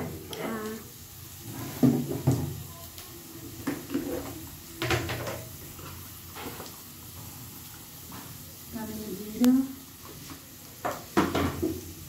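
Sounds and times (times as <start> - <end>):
knocks and clunks of kitchenware: 10.9 - 11.8.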